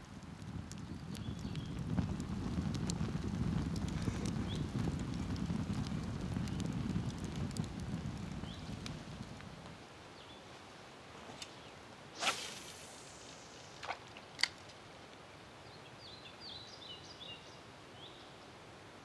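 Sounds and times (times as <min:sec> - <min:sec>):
brief swish: 0:12.2 - 0:14.0.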